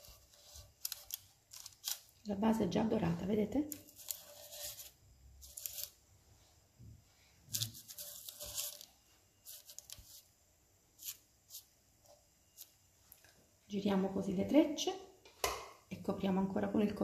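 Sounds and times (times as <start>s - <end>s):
parchment paper rustling and crinkling: 0.0s - 2.3s, 3.1s - 6.0s, 7.2s - 10.3s, 11.0s - 11.7s.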